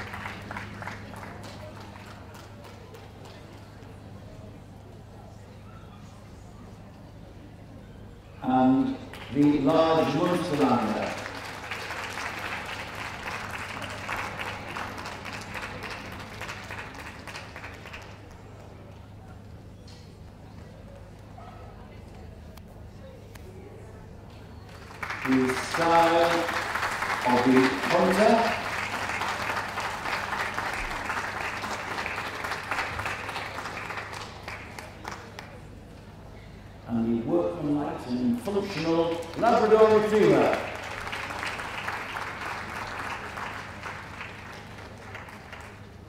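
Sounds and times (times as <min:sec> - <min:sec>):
audience applauding: 0:00.0 - 0:03.8, 0:09.1 - 0:18.7, 0:24.6 - 0:35.6, 0:38.6 - 0:46.0
spectators clapping: 0:00.0 - 0:04.0, 0:09.0 - 0:18.9, 0:24.6 - 0:35.8, 0:38.4 - 0:46.0.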